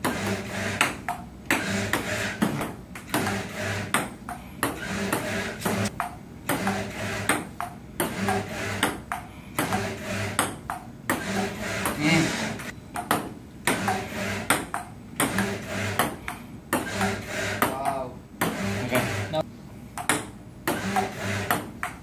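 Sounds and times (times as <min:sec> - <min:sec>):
ping-pong ball clicking: 0:10.4 - 0:10.9, 0:14.5 - 0:15.4, 0:20.0 - 0:20.3, 0:21.5 - 0:22.0.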